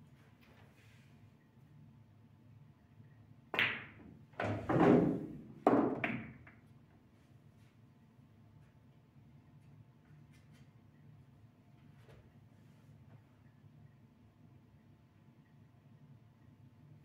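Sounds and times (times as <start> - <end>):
pool ball knocking into pocket: 3.6 - 6.5.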